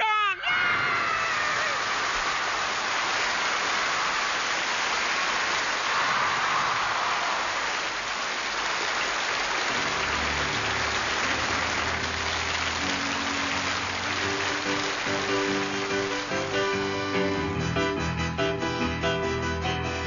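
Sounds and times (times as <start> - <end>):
audience applause: 0.7 - 17.5
low sustained music notes: 9.7 - 18.1.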